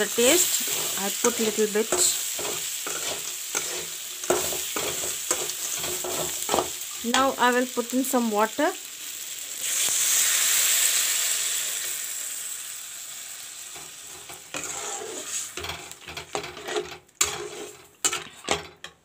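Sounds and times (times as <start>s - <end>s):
spatula scraping pan: 0.0s - 7.3s, 13.8s - 19.0s
water sizzling in hot pan: 0.0s - 18.4s.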